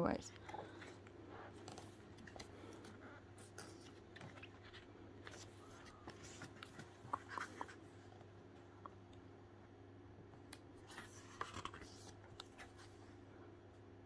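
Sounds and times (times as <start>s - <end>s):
low steady hum: 0.0s - 14.0s
paper pages rustling: 0.4s - 7.9s, 10.9s - 13.1s.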